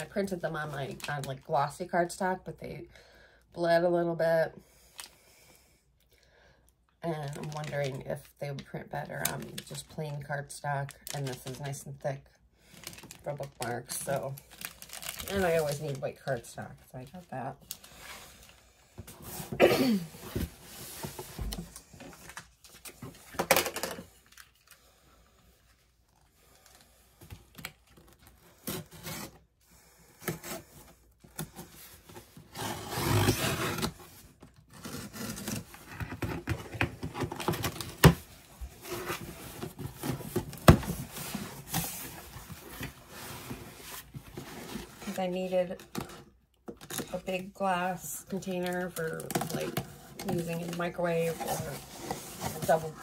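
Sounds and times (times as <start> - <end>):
packaging rubbing and tearing: 14.4 - 16.0.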